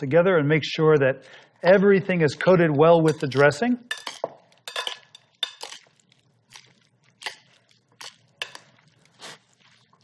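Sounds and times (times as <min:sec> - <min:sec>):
soft shuffling of salad: 0:05.8 - 0:10.0.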